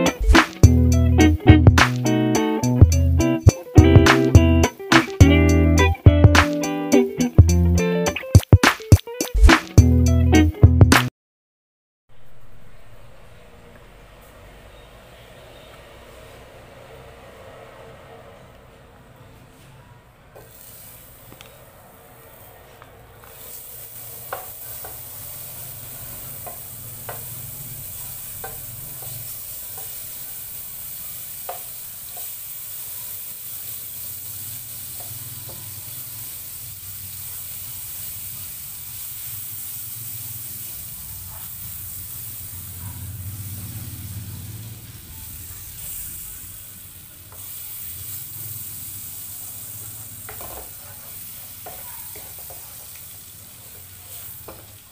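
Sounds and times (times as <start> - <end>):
margarine sizzling in a pan: 20.4 - 21.7, 23.2 - 54.9
wooden spatula tapping and scraping: 50.2 - 53.1, 53.7 - 54.8.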